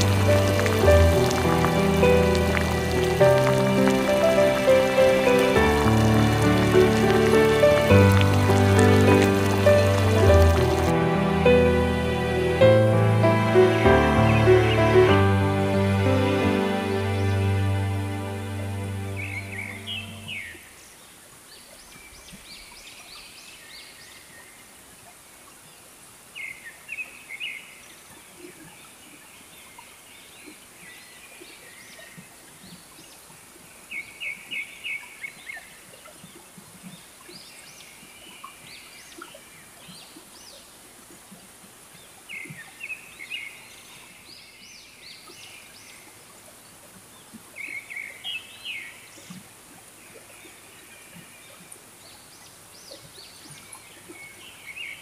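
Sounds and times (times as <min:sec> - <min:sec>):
steady high hiss: 0:00.0 - 0:20.9.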